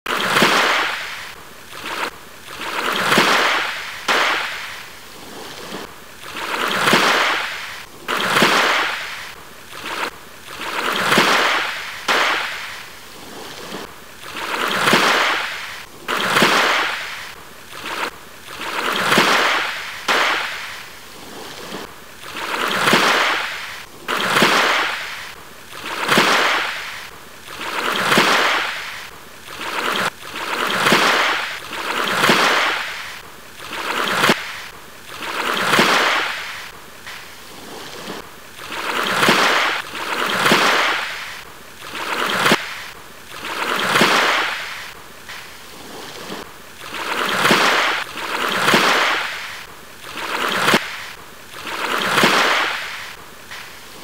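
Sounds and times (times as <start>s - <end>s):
small waves lapping at shore: 0.1s - 54.0s.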